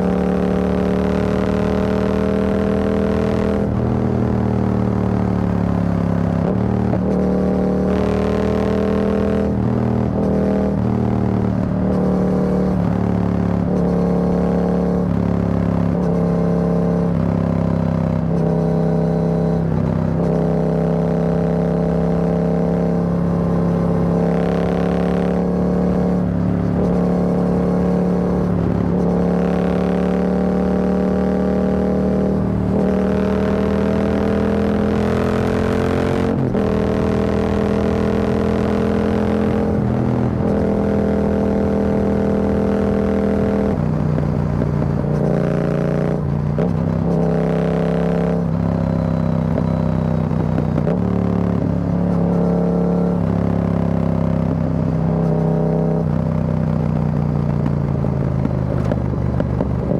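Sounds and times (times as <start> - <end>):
motorcycle exhaust note: 0.0 - 59.9.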